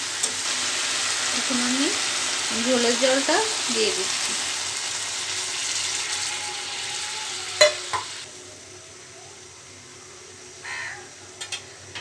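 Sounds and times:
water poured into hot pan sizzling: 0.0s - 8.3s.

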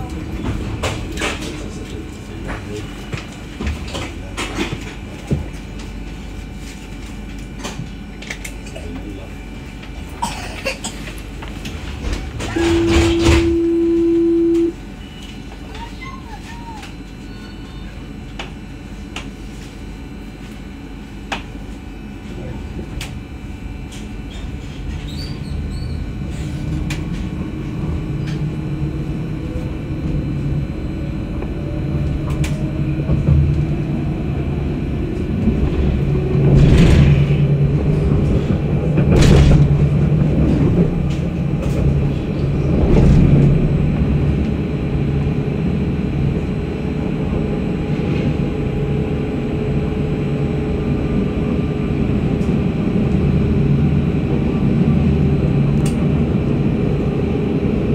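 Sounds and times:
tram wheels rumbling on rail: 0.0s - 57.9s.

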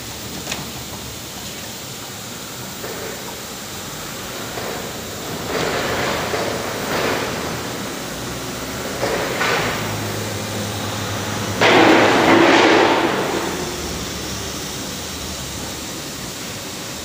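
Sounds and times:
factory machinery hum: 0.0s - 17.0s.

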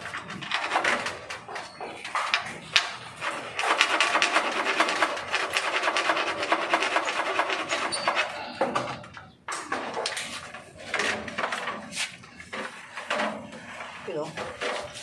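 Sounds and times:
rapid scraping: 0.0s - 9.1s.

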